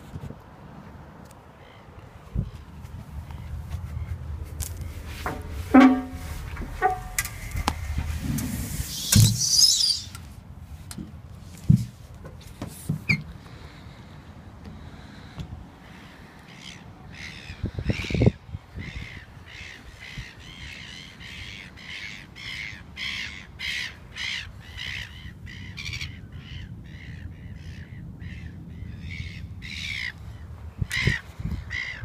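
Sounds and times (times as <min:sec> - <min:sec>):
birds calling: 0:01.5 - 0:10.3, 0:14.8 - 0:32.0.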